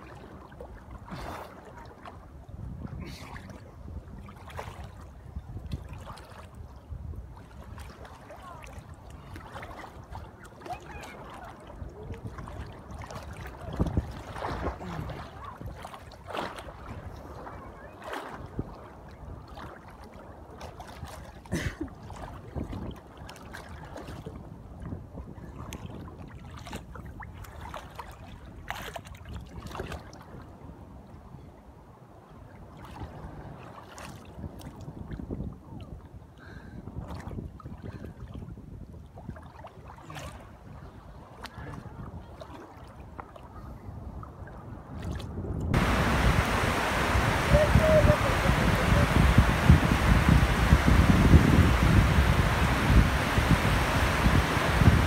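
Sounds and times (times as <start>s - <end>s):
sea water splashing: 0.0s - 2.4s, 7.3s - 24.4s, 45.0s - 55.0s
wind buffeting microphone: 2.1s - 31.6s, 33.0s - 55.0s
steady low rumble: 45.8s - 55.0s.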